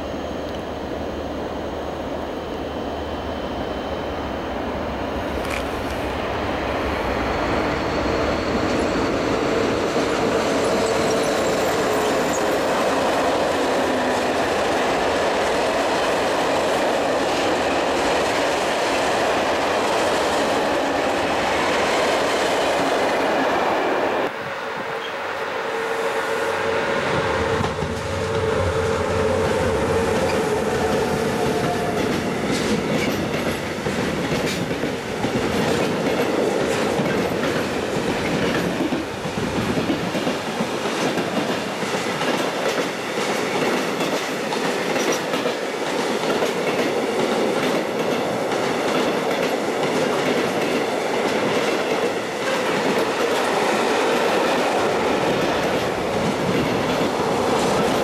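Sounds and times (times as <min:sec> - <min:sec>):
electric locomotive passing: 0:00.0 - 0:58.0
train wagons rumbling: 0:27.0 - 0:58.0.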